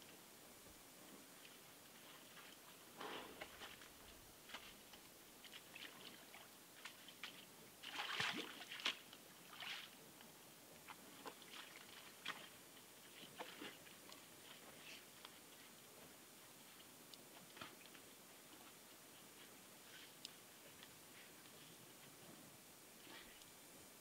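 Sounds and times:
small splashes in water: 0:07.8 - 0:09.9.

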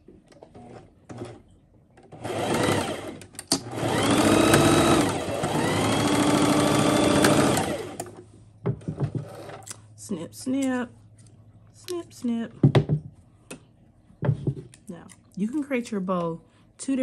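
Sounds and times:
sewing machine stitching fabric: 0:02.1 - 0:08.1.

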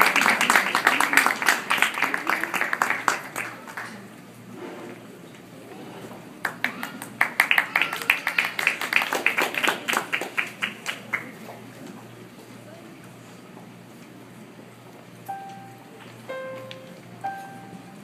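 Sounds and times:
small audience applauding: 0:00.0 - 0:04.2, 0:06.4 - 0:11.7.

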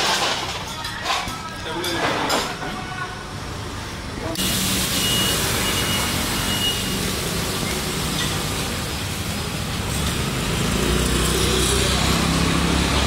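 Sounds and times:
road noise hiss: 0:02.8 - 0:13.0.

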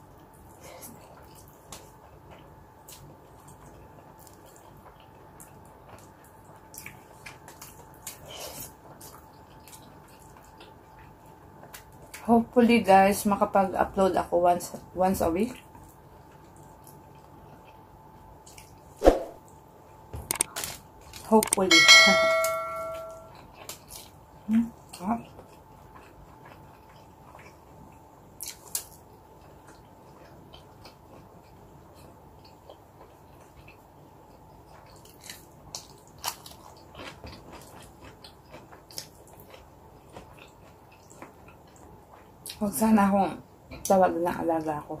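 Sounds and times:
chewing and biting food: 0:00.4 - 0:12.3, 0:15.5 - 0:19.0, 0:23.3 - 0:42.6
crunchy clicks: 0:20.3 - 0:21.7
bright bell-like chime: 0:21.7 - 0:23.3.

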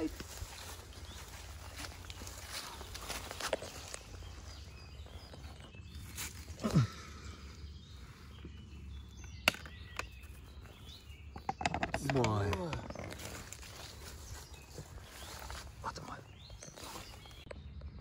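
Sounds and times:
footsteps in grass: 0:00.0 - 0:06.6, 0:13.1 - 0:17.5.

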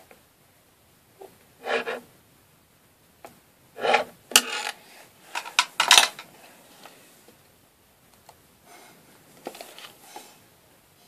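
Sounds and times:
stick scraping inside plastic bottle nozzle: 0:01.6 - 0:02.1.

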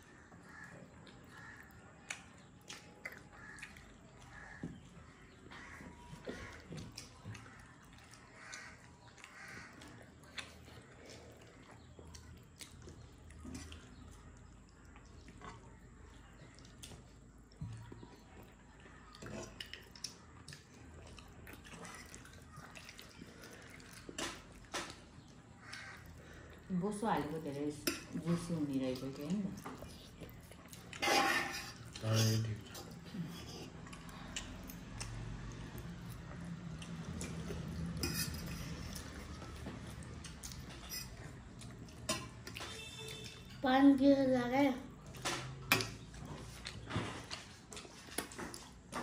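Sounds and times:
person chewing food: 0:00.0 - 0:43.6, 0:44.9 - 0:49.0
cutlery clinking on dishes: 0:31.0 - 0:33.8, 0:37.9 - 0:39.0, 0:42.0 - 0:43.6, 0:45.2 - 0:46.1.

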